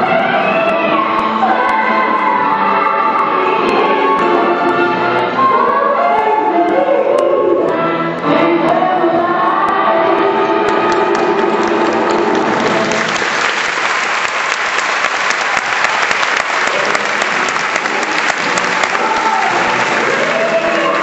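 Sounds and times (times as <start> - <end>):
dance music: 0.0 - 13.2, 16.6 - 21.0
audience clapping: 10.6 - 21.0.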